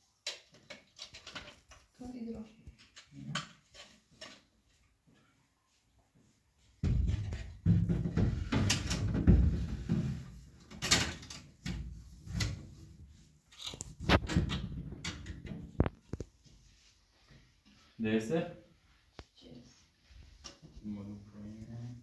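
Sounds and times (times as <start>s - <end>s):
refrigerator shelves rattling and rubbing: 6.8s - 13.0s.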